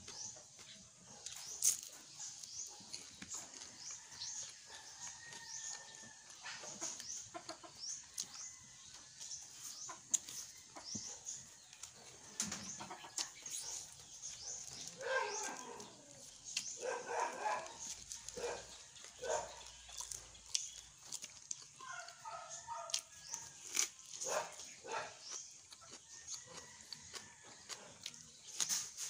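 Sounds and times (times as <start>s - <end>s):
chewing and wet mouth clicks: 17.8s - 22.2s, 22.8s - 28.7s.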